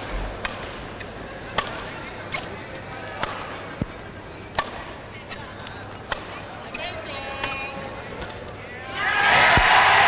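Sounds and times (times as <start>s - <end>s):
racket striking shuttlecock: 0.0s - 5.4s, 6.0s - 6.5s
hall background noise: 0.0s - 10.0s.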